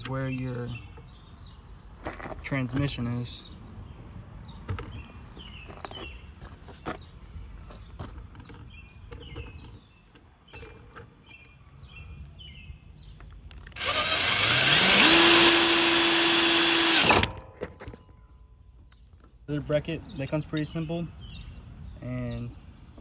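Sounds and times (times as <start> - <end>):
cordless drill drilling into metal: 13.7 - 17.3.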